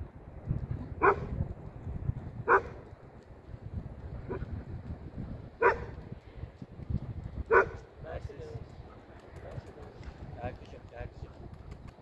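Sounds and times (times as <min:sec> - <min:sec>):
dog barking: 0:01.0 - 0:01.3, 0:02.5 - 0:02.8, 0:05.6 - 0:05.9, 0:07.5 - 0:07.8.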